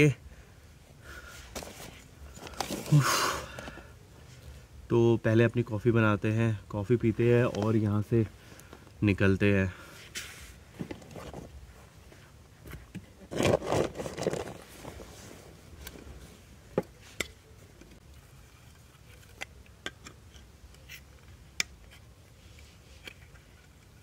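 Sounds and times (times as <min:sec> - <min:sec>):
camping gear rustling and scraping: 0:00.8 - 0:04.7, 0:09.8 - 0:24.0.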